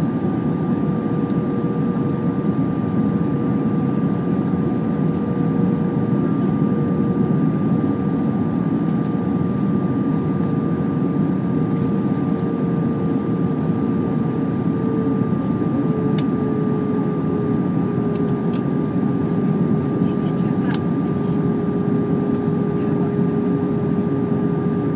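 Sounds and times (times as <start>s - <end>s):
constant whine: 0.0s - 24.9s.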